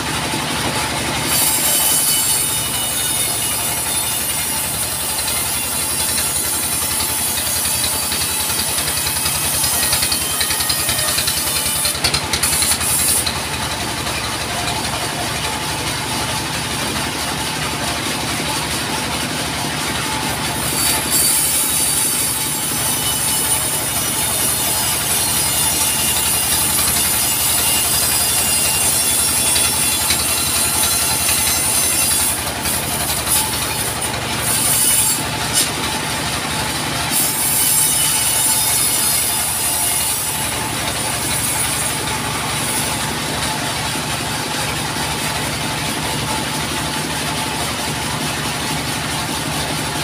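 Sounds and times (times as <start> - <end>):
saw blade hissing through wood: 1.3 - 13.5, 37.1 - 43.0.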